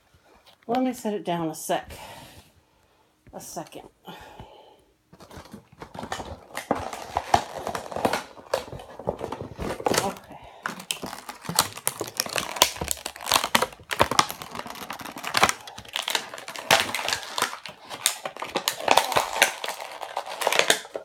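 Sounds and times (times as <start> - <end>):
plastic packaging crinkling: 5.1 - 21.0.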